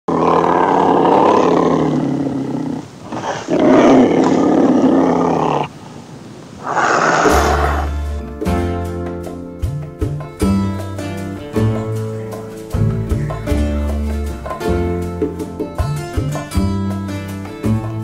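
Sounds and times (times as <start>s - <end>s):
animal roars: 0.1s - 5.8s, 6.6s - 8.0s.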